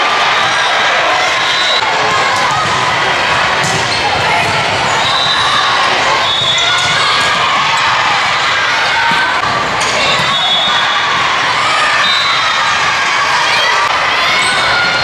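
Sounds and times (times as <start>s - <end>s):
people talking and calling out: 0.0s - 15.0s
volleyball being hit: 3.6s - 5.3s.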